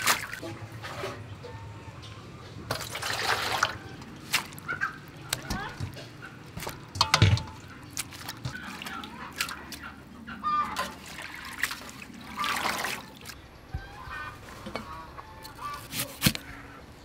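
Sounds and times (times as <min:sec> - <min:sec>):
water splashing in metal basin: 0:00.0 - 0:00.4, 0:02.7 - 0:13.4.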